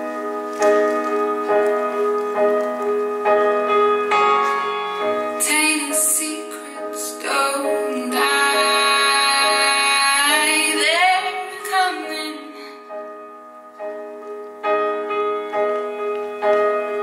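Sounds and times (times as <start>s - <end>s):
woman singing: 5.4s - 12.9s.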